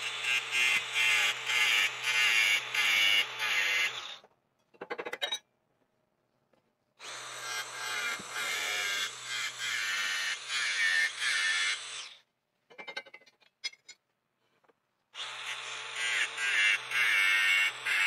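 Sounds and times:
angle grinder cutting metal: 0.0 - 4.2, 7.0 - 12.2, 15.2 - 18.0.

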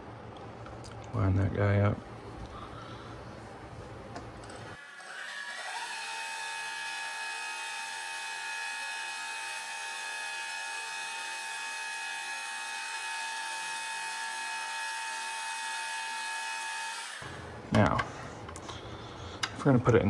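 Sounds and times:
small electric motor whine: 4.7 - 17.4.

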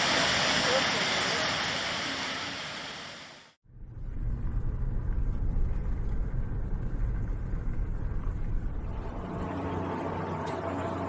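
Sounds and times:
road and engine rumble: 0.0 - 11.0.

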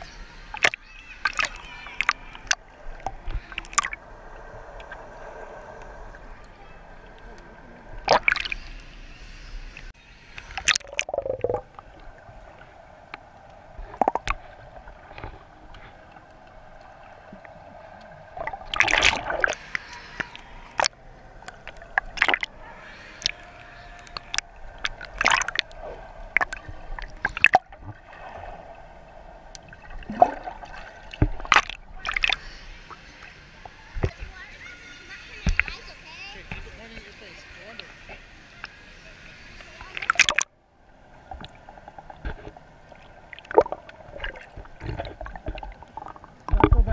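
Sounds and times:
pool water gurgling and sloshing: 0.0 - 46.9
sharp water splashes: 0.5 - 4.0, 8.0 - 8.7, 10.4 - 12.2, 16.8 - 22.6, 23.2 - 32.4, 39.9 - 40.5, 43.0 - 46.9.

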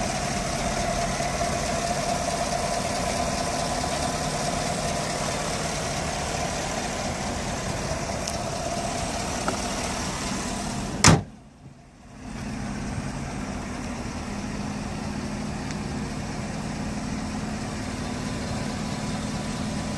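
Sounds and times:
truck engine idling: 0.0 - 19.9
car hood slamming: 11.0 - 11.4.

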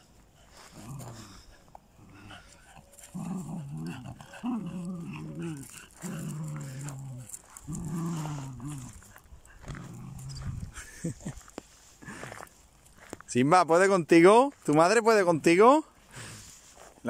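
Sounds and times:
dogs growling in play: 0.4 - 11.0.

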